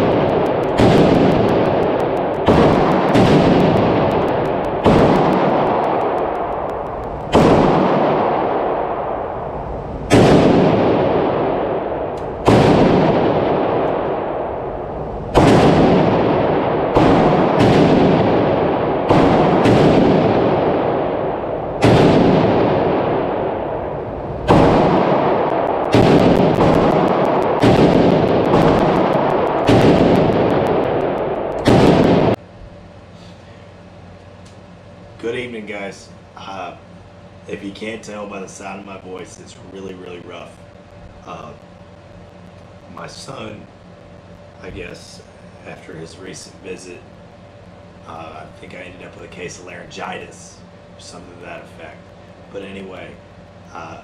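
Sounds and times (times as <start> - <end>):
rifle shots echoing indoors: 0.0 - 32.4.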